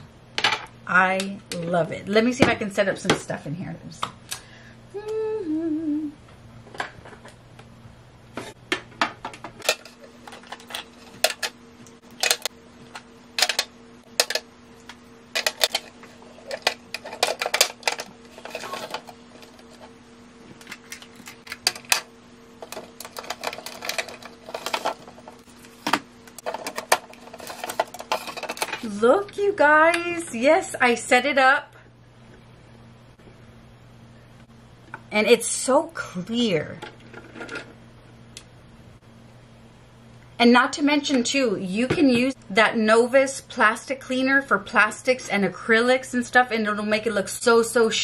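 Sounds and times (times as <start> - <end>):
person humming: 4.9 - 6.2.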